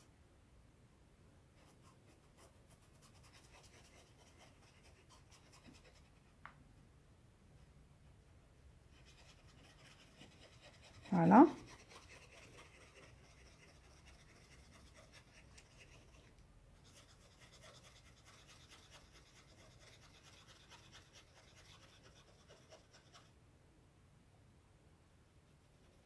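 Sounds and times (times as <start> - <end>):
paintbrush dabbing on cloth: 8.9 - 23.4.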